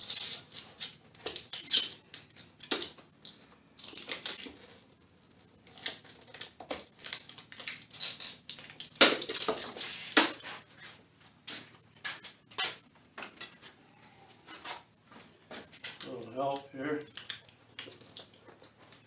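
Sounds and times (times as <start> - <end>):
plastic sheeting crinkling: 3.8 - 11.0.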